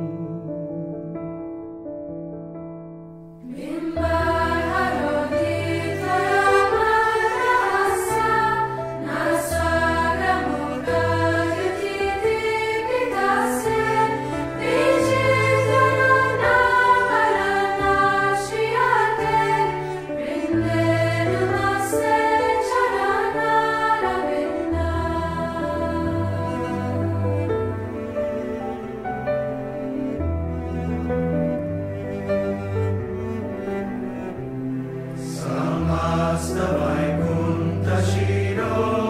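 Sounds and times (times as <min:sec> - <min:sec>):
choir singing slow devotional song: 0:03.4 - 0:28.2, 0:35.2 - 0:39.0.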